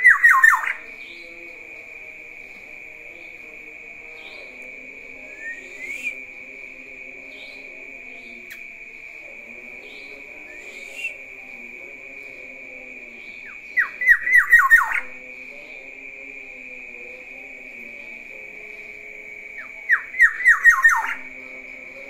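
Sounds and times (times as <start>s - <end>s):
bird whistled notes: 5.4s - 6.2s.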